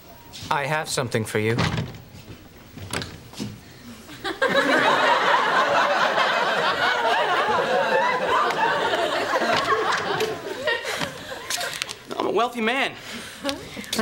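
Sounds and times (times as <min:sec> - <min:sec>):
studio audience laughing: 0:04.1 - 0:12.0.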